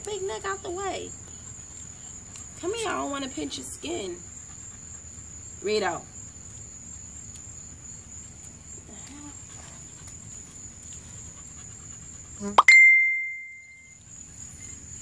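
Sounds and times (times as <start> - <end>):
crickets chirping: 0.0 - 15.0
loud ringing ding: 12.6 - 13.9.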